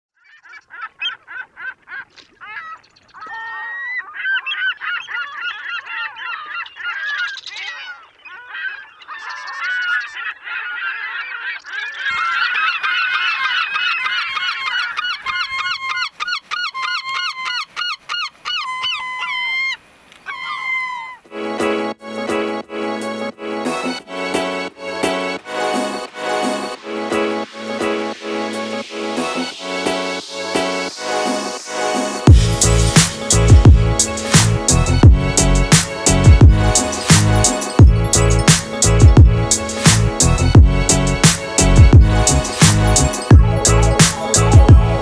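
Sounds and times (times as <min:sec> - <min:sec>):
animal calls overlapping: 0:00.2 - 0:21.3.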